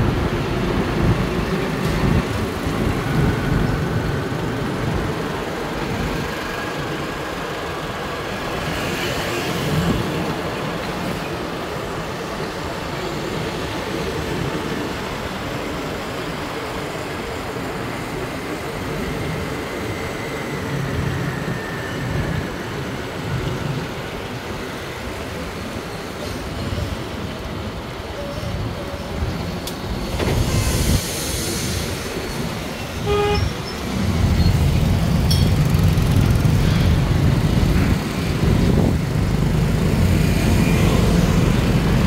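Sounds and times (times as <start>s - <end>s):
passing vehicles rumbling: 31.7s - 42.0s.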